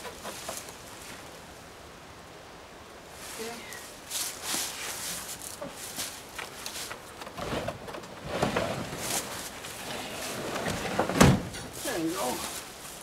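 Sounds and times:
camper being folded rustling: 4.8s - 12.6s.

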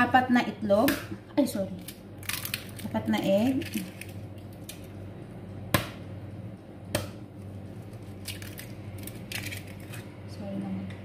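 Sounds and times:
steady low hum: 0.0s - 11.0s
eggs cracking against bowl: 0.8s - 5.0s, 6.9s - 10.1s.

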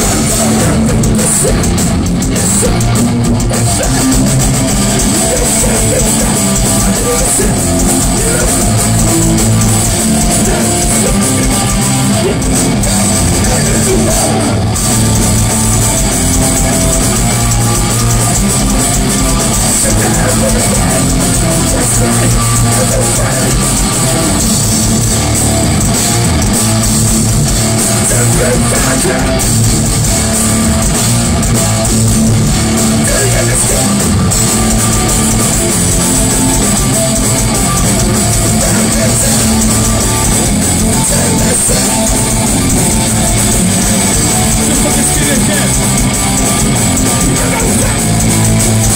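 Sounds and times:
vocalist on microphone: 0.0s - 24.8s, 27.6s - 30.9s, 31.8s - 48.9s
drum kit: 0.0s - 48.9s
electric guitars: 0.0s - 48.9s.

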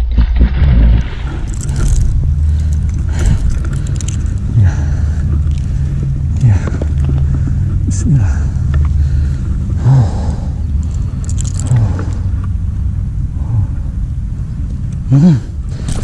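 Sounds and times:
low engine rumble: 0.0s - 16.0s
fishing rod and reel noises: 1.1s - 16.0s.

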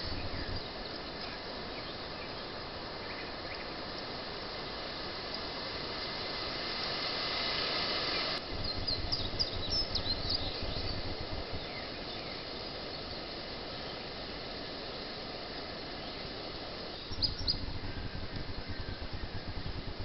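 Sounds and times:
insects hissing: 0.0s - 20.0s
low uneven rumble: 8.4s - 13.2s, 16.8s - 20.0s
bird chirps: 8.6s - 13.2s, 16.9s - 19.3s.

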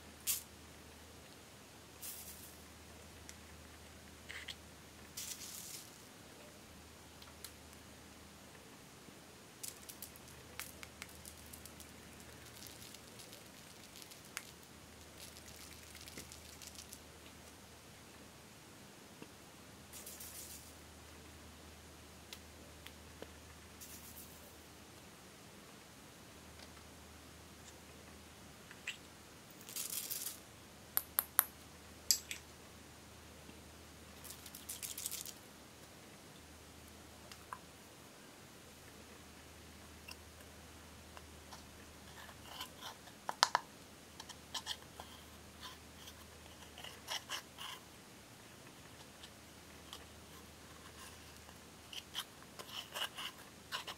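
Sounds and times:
glitter pattering on beads: 2.0s - 2.6s, 5.2s - 6.1s, 9.6s - 17.0s, 29.6s - 30.4s, 34.2s - 35.4s
plastic jar rustle: 2.0s - 2.6s, 5.2s - 6.0s, 9.6s - 17.0s, 20.0s - 20.7s, 23.8s - 24.4s, 29.6s - 30.4s, 34.2s - 35.4s.

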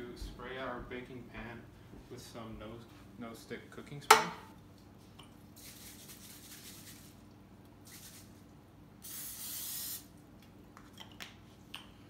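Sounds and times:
aerosol spray hissing: 9.0s - 10.1s.

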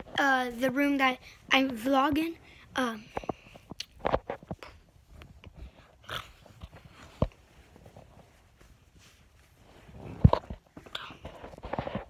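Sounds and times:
footsteps: 3.0s - 12.0s.

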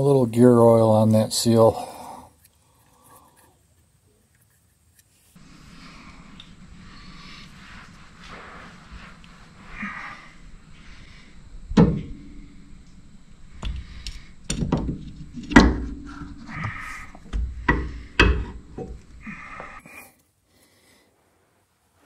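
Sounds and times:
rustling: 2.4s - 19.8s.

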